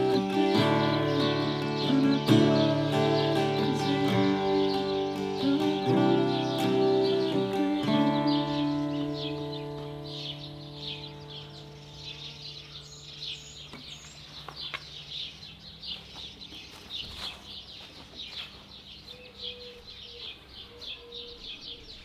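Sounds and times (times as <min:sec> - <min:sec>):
acoustic guitar chord ringing: 0:00.0 - 0:13.6
small birds chirping: 0:00.0 - 0:22.0.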